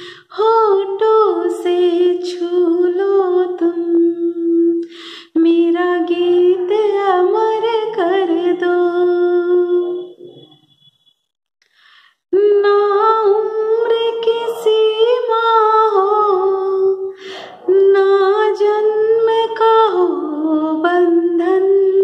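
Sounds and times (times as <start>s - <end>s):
woman breathing: 0.0s - 0.3s, 4.8s - 5.4s, 11.6s - 12.2s, 17.1s - 17.7s
woman singing unaccompanied: 0.0s - 10.1s, 12.3s - 22.0s.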